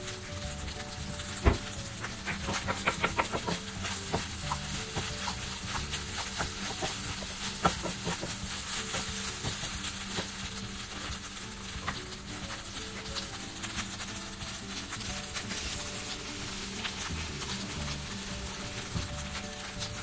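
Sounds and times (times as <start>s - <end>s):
frying sizzle: 0.0s - 20.0s
spatula scraping and tapping pan: 0.6s - 13.4s.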